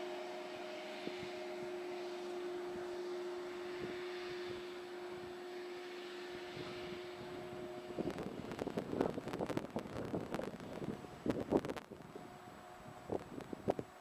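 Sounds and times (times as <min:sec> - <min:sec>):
steady mechanical hum: 0:00.0 - 0:14.0.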